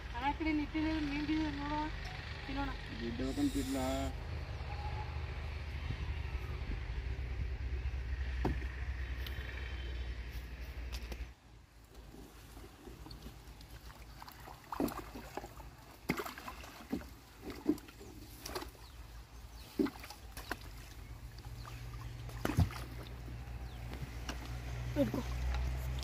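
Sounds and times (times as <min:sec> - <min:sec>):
paddle splashing in shallow water: 0:11.8 - 0:26.0.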